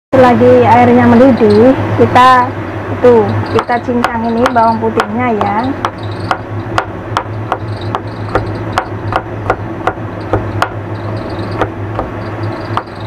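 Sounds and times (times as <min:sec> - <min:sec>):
low hum: 0:00.2 - 0:13.0
knife chopping on cutting board: 0:03.6 - 0:10.8.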